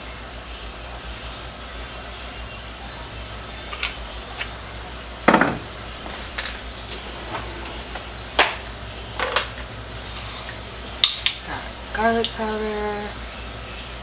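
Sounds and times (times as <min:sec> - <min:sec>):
kitchen items knocking on counter: 0:05.3 - 0:05.7.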